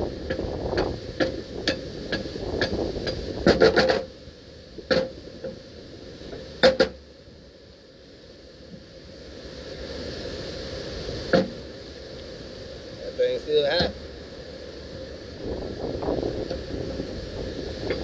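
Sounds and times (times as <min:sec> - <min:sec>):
wind noise: 0:00.0 - 0:04.1, 0:14.7 - 0:18.0
metal-on-metal taps and clanks: 0:00.3 - 0:04.1, 0:04.9 - 0:05.6, 0:06.3 - 0:07.0.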